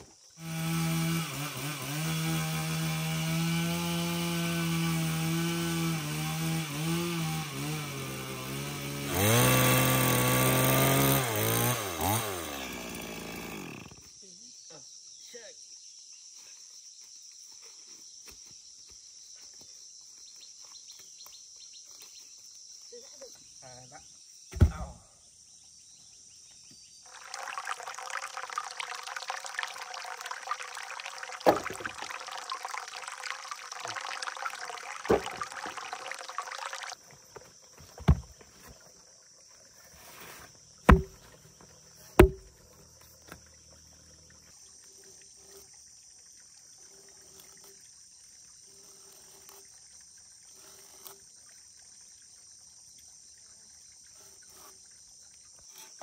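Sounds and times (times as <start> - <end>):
insects droning: 8.8 - 56.0
heavy log thuds: 24.5 - 25.0, 35.1 - 35.6, 37.8 - 38.5, 40.8 - 41.4, 42.2 - 42.6.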